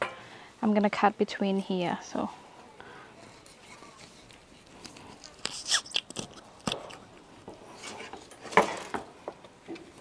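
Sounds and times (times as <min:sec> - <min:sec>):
knife crunching through fish head: 0:04.9 - 0:07.0.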